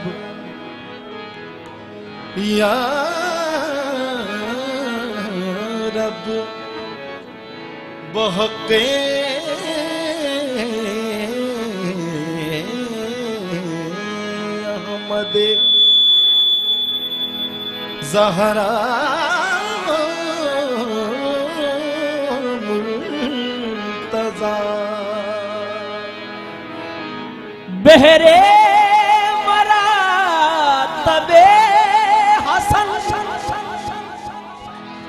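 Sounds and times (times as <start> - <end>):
harmonium drone: 0.0 - 35.0
higher voice singing: 12.5 - 16.7.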